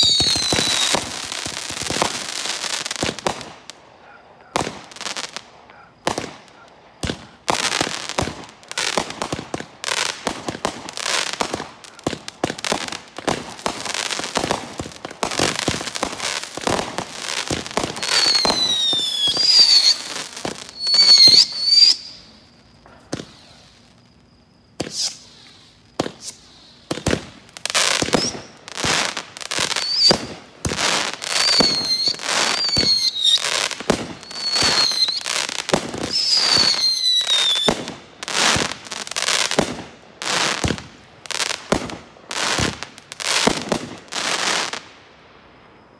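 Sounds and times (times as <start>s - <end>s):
fireworks bursting reports: 0.0s - 39.8s
falling firework whistles: 0.0s - 45.9s
fireworks launch thumps: 22.8s - 23.6s, 24.8s - 27.4s.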